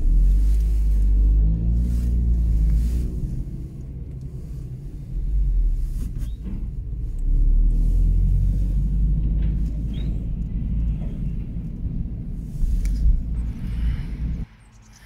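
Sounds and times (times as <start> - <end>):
engine and road rumble: 0.0 - 15.0.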